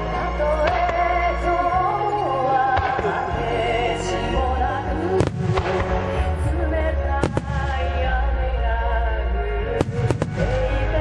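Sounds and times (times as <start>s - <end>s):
loud music: 0.0s - 11.0s
fireworks bursting: 5.2s - 6.4s, 7.2s - 8.0s, 9.8s - 11.0s.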